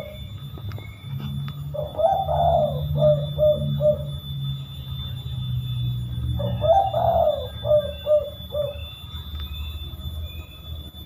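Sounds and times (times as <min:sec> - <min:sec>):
dove cooing: 0:00.0 - 0:04.7, 0:06.2 - 0:09.1.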